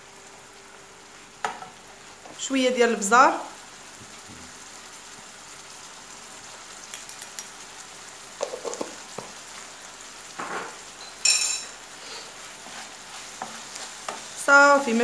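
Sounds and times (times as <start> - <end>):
food sizzling in a pan: 0.0 - 15.0
sharp ringing clink: 11.0 - 11.8.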